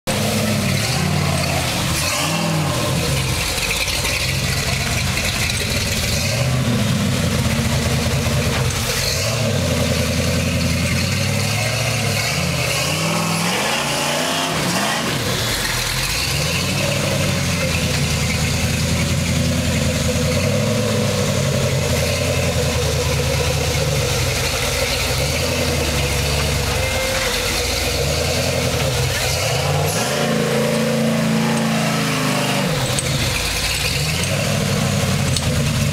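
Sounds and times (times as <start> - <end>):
buggy engine revving under load: 0.1 - 35.9.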